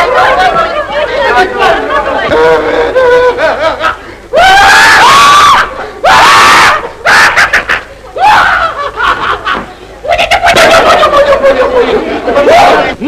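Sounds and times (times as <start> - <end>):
shrill human screams: 4.3 - 7.6, 8.2 - 8.9.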